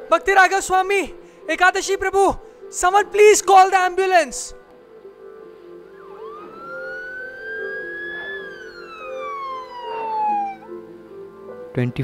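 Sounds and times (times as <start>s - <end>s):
siren wail: 5.9s - 10.8s.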